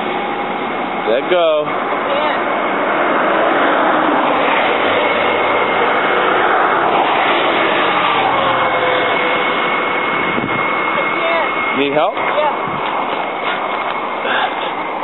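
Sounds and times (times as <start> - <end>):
vehicle passing close by: 0.0 - 14.2.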